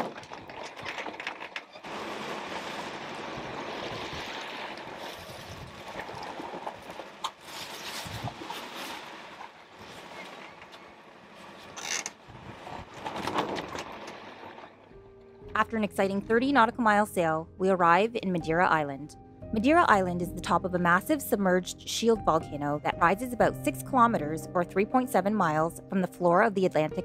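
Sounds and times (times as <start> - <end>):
water and wind rushing along hull: 0.0 - 14.9.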